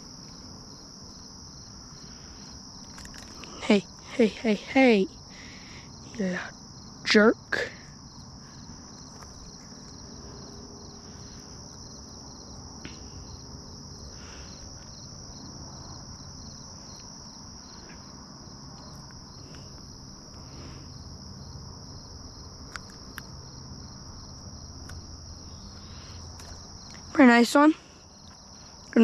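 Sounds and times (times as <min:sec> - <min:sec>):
high-pitched insect trill: 0:00.0 - 0:29.0
insect pulsing rhythmically: 0:00.0 - 0:29.0
sharp small clicks: 0:02.8 - 0:03.6, 0:22.7 - 0:23.3.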